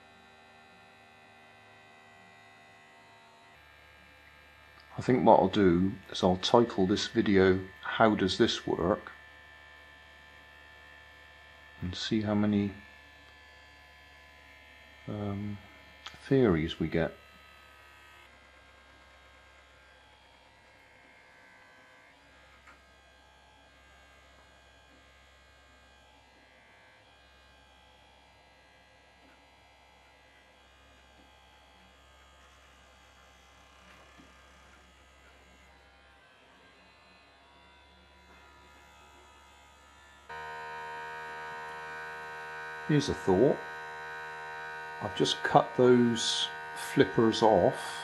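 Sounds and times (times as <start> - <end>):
toothbrush motor buzzing: 0.0 - 26.6, 27.3 - 48.0.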